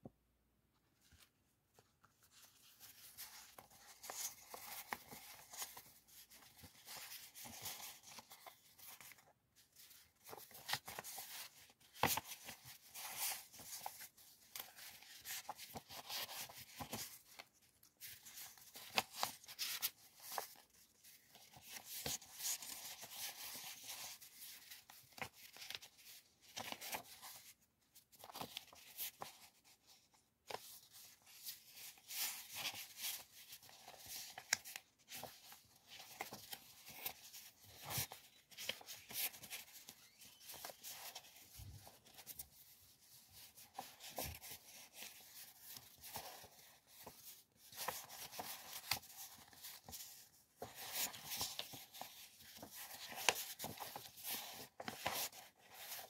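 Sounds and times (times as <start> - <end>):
paper sheets rustling: 1.0 - 56.0.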